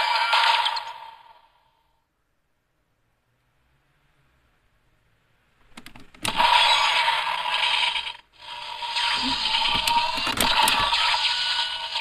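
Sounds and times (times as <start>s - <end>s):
toy mechanical sound effects: 6.2s - 12.0s
plastic toy clicks: 9.7s - 10.9s.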